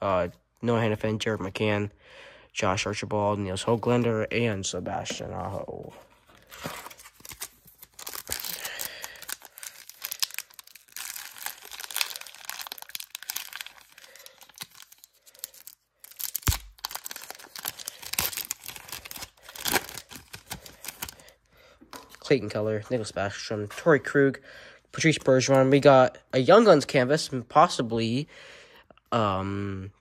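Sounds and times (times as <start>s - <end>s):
card pack wrapper crinkling: 6.2s - 22.3s.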